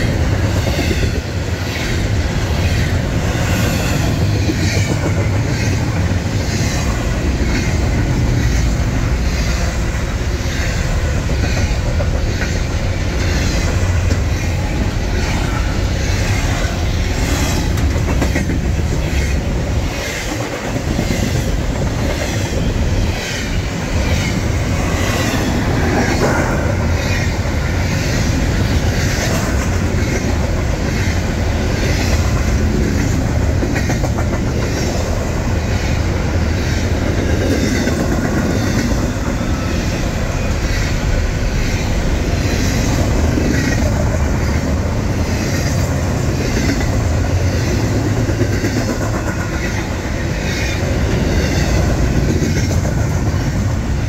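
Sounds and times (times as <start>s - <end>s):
wheels clicking over rail joints: 0.0s - 35.2s
freight train rumbling past: 0.0s - 54.0s.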